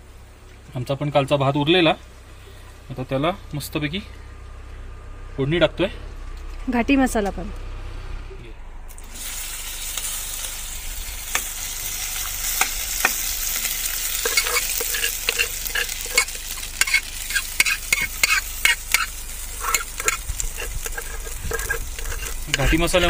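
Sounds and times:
oil sizzling in a pan: 9.0s - 23.0s
metal spoon scraping and tapping pan: 14.2s - 23.0s.

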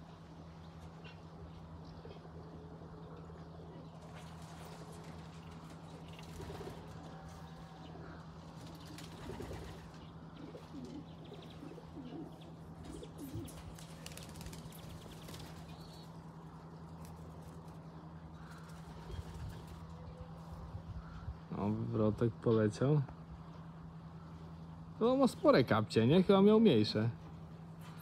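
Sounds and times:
faint steady hum: 0.0s - 28.0s
pigeons cooing: 1.0s - 16.1s
wings flapping: 4.0s - 7.4s, 8.4s - 11.0s, 12.8s - 16.2s, 18.4s - 20.0s.

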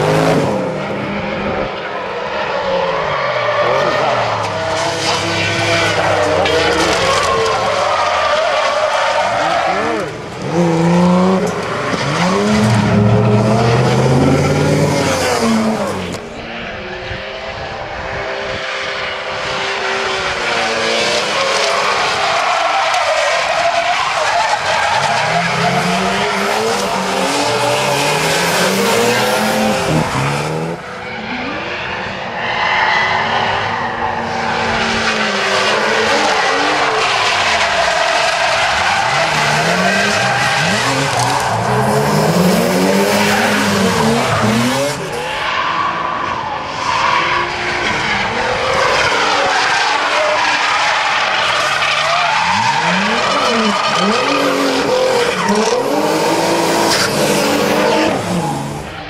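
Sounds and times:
high-revving car engines: 0.0s - 59.0s
tyres squealing: 49.2s - 58.9s.

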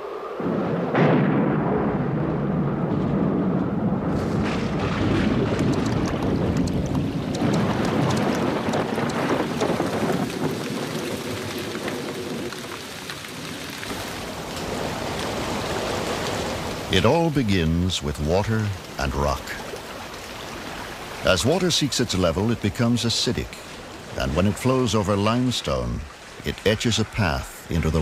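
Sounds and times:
thunder rumbling: 0.0s - 17.1s
heavy rain falling onto water: 1.7s - 28.0s.

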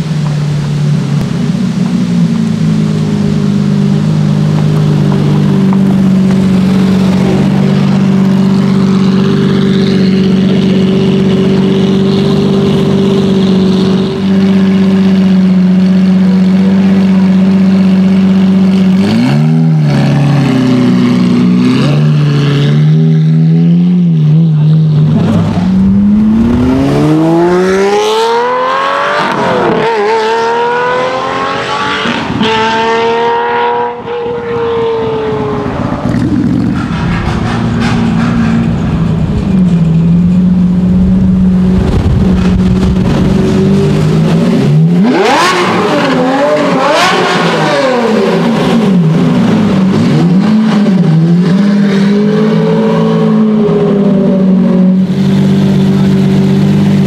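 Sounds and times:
sports car engine idling and revving: 0.0s - 57.0s.

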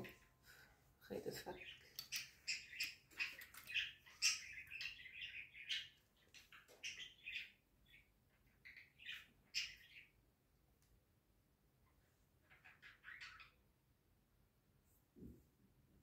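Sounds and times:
small birds chirping: 1.1s - 14.2s.

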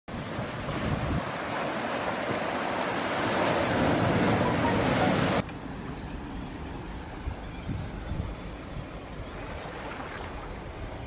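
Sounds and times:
sea surf washing through rocks: 0.1s - 5.4s.

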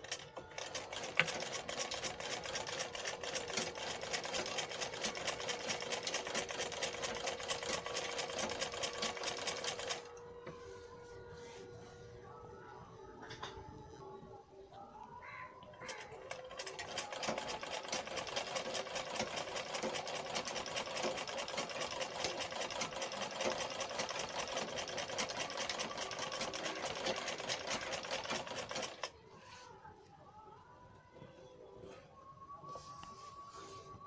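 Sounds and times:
sewing machine stitching: 0.0s - 10.1s, 15.9s - 29.1s.

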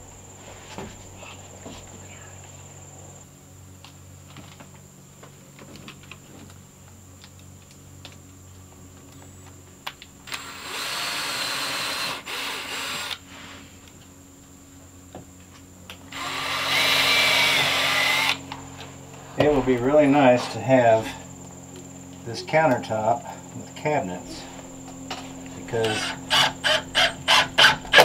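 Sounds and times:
cordless drill whining: 10.3s - 13.2s, 16.1s - 18.5s, 25.8s - 28.0s.

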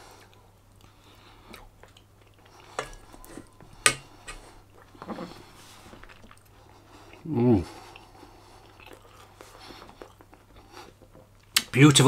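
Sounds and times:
metal spoon clinking on dish: 2.8s - 4.4s.

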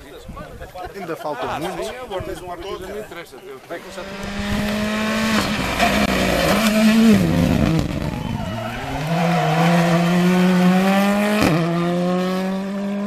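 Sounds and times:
rally car engine revving: 3.8s - 13.0s.

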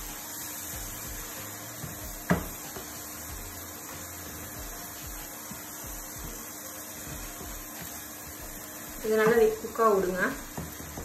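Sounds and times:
light sizzle: 0.0s - 11.0s
spatula knocking against pan: 1.8s - 3.0s.

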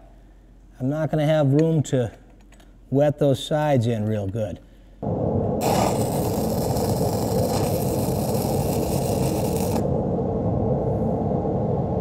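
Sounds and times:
low rumble: 5.0s - 12.0s
welding arc hissing: 5.6s - 9.9s.

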